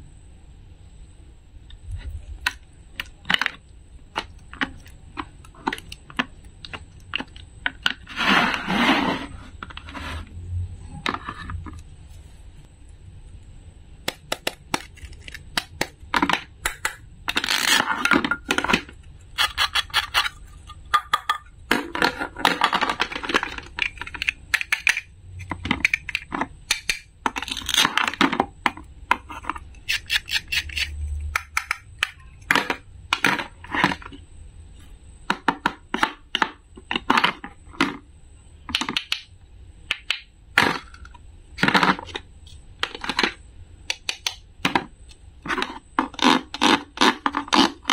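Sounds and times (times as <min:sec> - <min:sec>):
toy pieces scraping: 0:08.0 - 0:10.3, 0:17.3 - 0:20.8
toy pieces clicking and tapping: 0:14.1 - 0:17.4, 0:22.8 - 0:28.3, 0:29.8 - 0:32.8.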